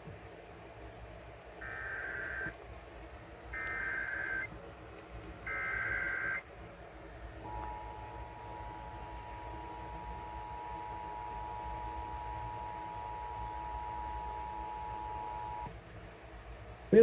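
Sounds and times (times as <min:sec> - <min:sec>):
data tone bursts: 0:01.6 - 0:02.5, 0:03.6 - 0:04.5, 0:05.5 - 0:06.4.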